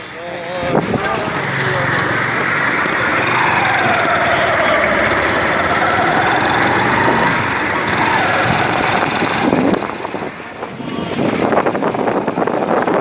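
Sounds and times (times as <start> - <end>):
vehicle engine idling: 0.8 - 10.8.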